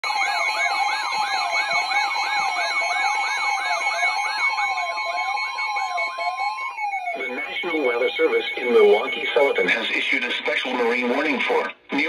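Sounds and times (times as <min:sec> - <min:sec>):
weather radio alarm whoop: 0:00.0 - 0:10.2
steady alert tone: 0:03.7 - 0:10.2.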